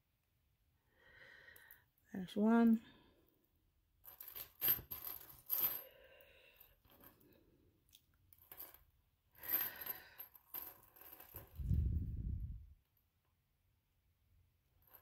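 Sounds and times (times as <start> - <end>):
small metal clasps clinking: 4.0 - 7.3, 8.3 - 11.6.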